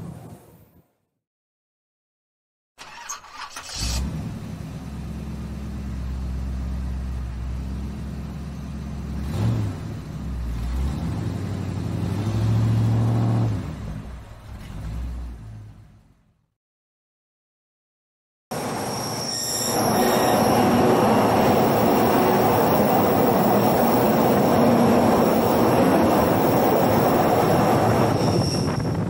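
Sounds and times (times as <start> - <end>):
electric train hum: 18.5 - 29.0.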